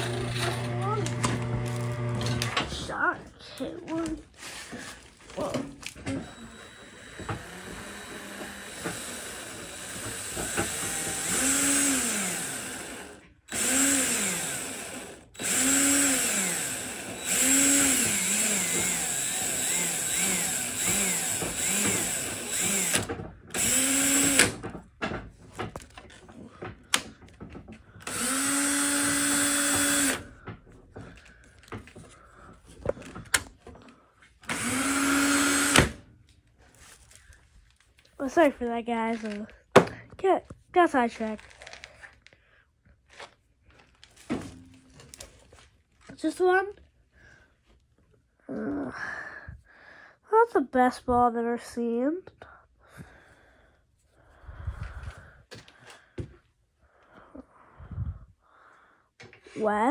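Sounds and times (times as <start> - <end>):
power tool motor spinning up: 0.0 - 2.6, 6.1 - 24.6, 28.0 - 30.4, 34.4 - 36.0.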